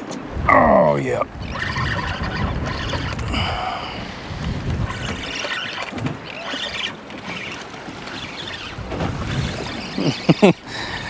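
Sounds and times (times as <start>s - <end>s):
wind buffeting microphone: 0.0s - 6.3s, 8.0s - 10.0s
water slapping against boat hull: 4.3s - 10.6s.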